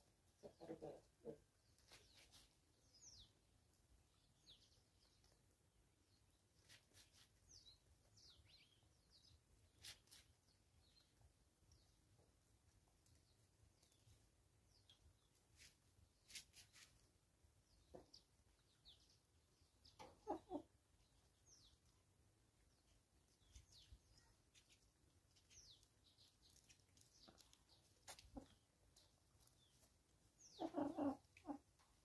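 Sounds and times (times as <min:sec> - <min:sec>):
chickens clucking: 0:00.3 - 0:02.3, 0:19.9 - 0:20.7, 0:30.5 - 0:32.0.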